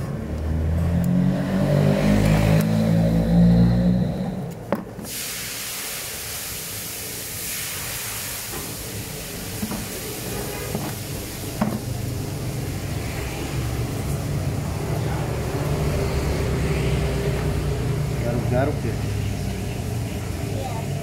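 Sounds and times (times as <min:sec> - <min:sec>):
steady hissing noise: 0:04.8 - 0:15.2.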